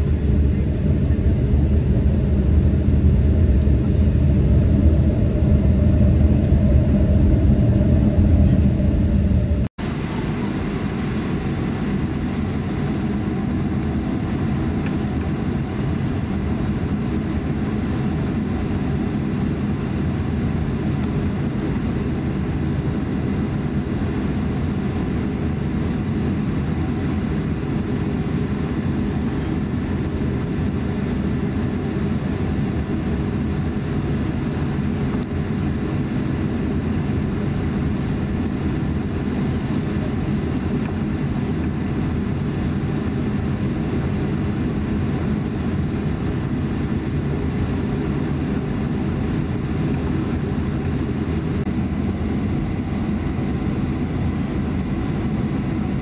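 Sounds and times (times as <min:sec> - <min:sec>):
jet engines low rumble: 0:00.0 - 0:56.0.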